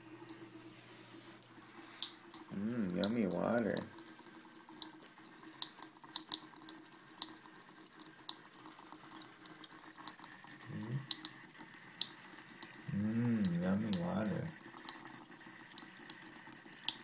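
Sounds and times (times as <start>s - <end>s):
faucet water trickling: 0.0s - 17.0s
cat lapping water: 0.3s - 17.0s.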